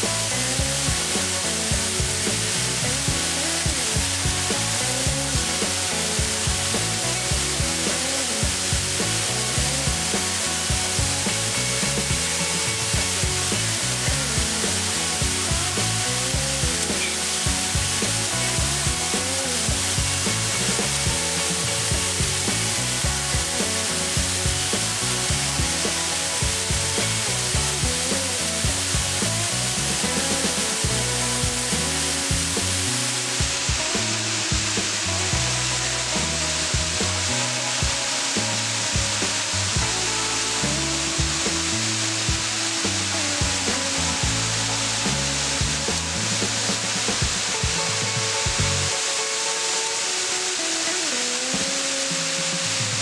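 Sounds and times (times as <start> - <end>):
background music with steady beat: 0.0 - 53.0
waterfall rushing: 0.0 - 53.0.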